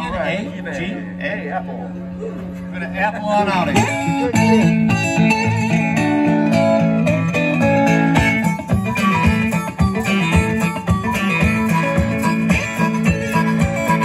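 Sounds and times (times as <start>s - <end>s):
electric bass: 0.0s - 14.0s
electric guitar: 3.6s - 14.0s
conga drumming: 3.8s - 14.0s
harmonica: 3.8s - 14.0s.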